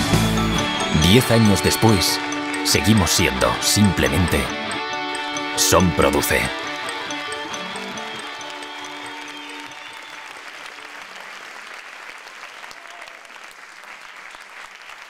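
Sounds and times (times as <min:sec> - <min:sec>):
held music chord: 0:00.0 - 0:09.7
audience applauding: 0:01.0 - 0:15.0.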